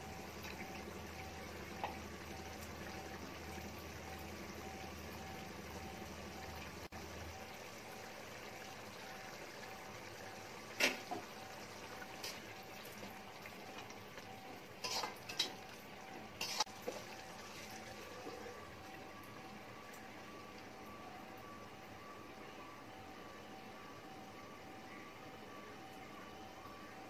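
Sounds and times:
gravy simmering in a pan: 0.0 - 26.9
metal spatula scraping a pan: 14.8 - 15.6, 16.4 - 17.7.

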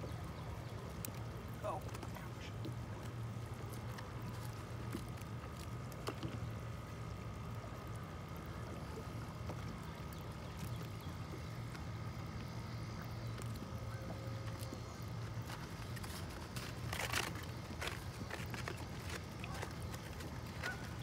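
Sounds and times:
boat motor humming: 0.0 - 21.0
faint constant whine: 0.0 - 21.0.

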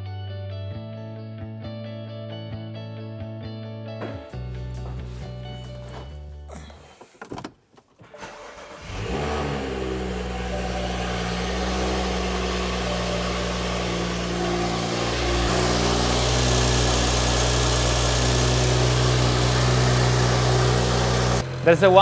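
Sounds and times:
car engine starting and idling: 4.8 - 22.0.

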